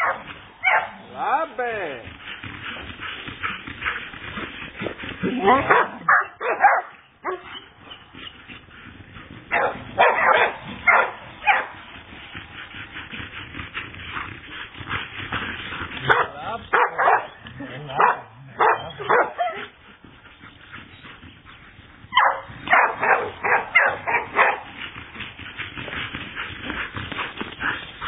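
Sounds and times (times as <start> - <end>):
dog barking and yipping: 0.0 - 1.0, 5.2 - 8.0, 9.5 - 11.8, 16.0 - 19.8, 22.1 - 24.7.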